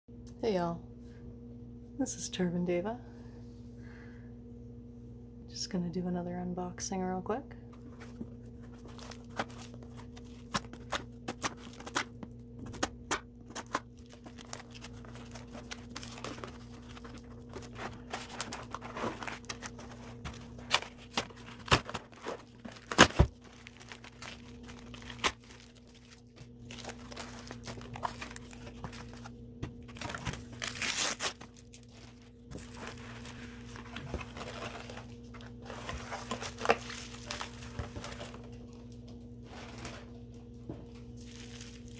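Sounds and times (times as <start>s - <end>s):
faint steady hum: 0.1s - 41.9s
bubble wrap rustling: 7.7s - 41.9s
cardboard tearing and cracking: 8.6s - 38.5s.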